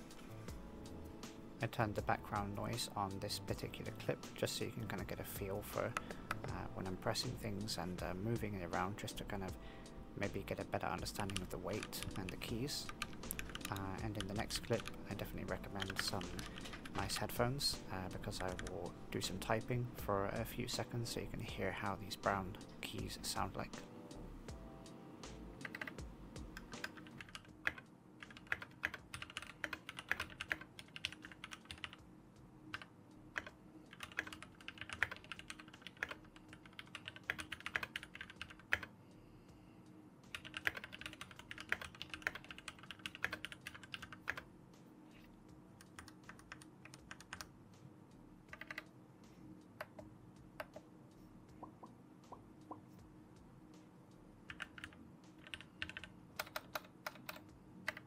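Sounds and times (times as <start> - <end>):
mechanical keyboard typing: 11.0 - 17.4, 18.1 - 19.4, 25.6 - 26.0, 26.6 - 32.0, 32.7 - 38.9, 40.3 - 44.4, 45.8 - 47.5, 48.5 - 48.8, 54.5 - 58.0.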